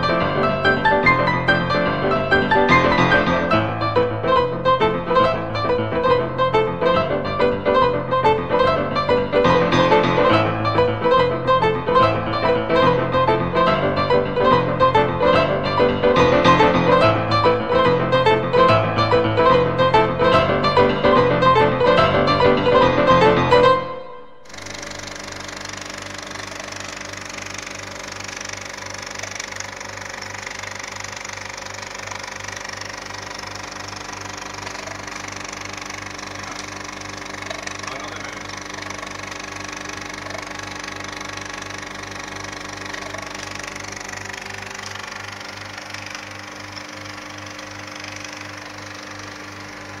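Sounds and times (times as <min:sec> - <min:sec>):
motor humming with low throb: 0:24.4 - 0:50.0.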